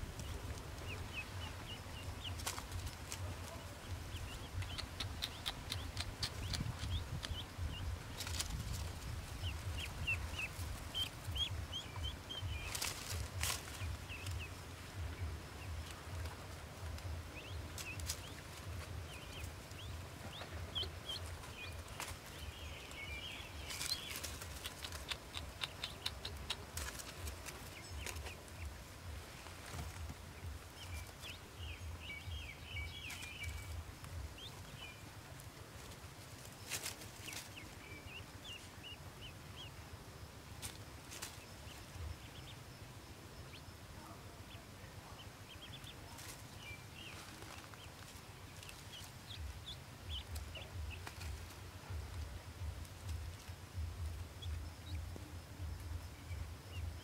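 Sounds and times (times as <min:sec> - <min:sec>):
ducklings peeping: 0:00.0 - 0:57.0
straw rustling and clicks: 0:12.5 - 0:14.5, 0:15.7 - 0:28.8.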